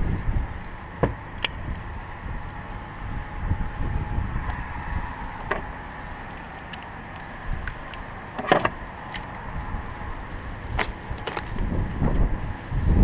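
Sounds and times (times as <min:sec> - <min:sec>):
outdoor background noise: 0:00.0 - 0:13.0
small parts clicking and knocking: 0:10.7 - 0:12.0.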